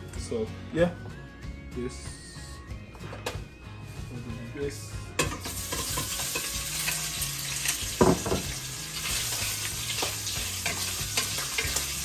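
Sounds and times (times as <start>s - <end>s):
food sizzling in a pan: 5.3s - 12.0s
utensil stirring against pan: 5.4s - 7.8s, 9.0s - 12.0s.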